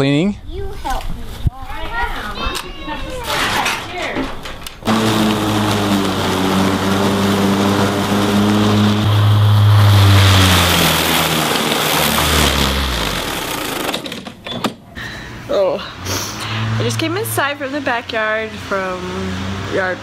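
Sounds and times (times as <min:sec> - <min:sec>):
lawn mower engine running: 0:04.8 - 0:14.4.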